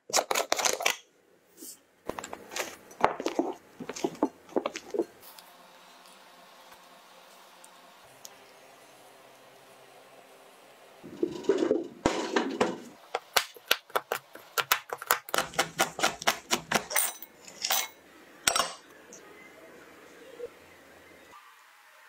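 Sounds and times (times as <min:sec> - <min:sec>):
knife chopping on wooden board: 0:13.2 - 0:16.9.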